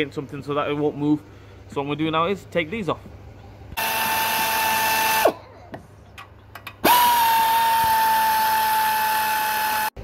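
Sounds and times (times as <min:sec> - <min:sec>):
power ratchet whining: 0:03.8 - 0:05.4, 0:06.7 - 0:10.0.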